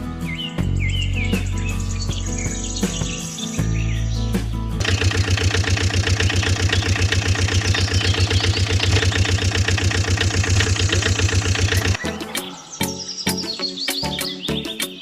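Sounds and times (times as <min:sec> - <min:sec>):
truck engine chugging: 0:04.8 - 0:12.0.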